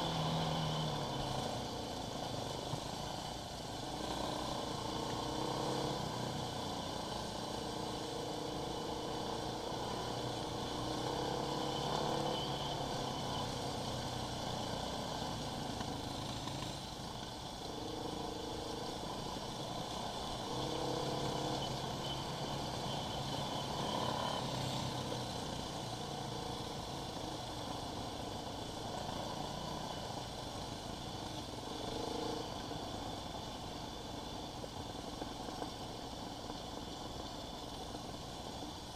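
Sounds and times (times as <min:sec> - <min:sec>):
quad bike engine running: 0:00.0 - 0:38.9.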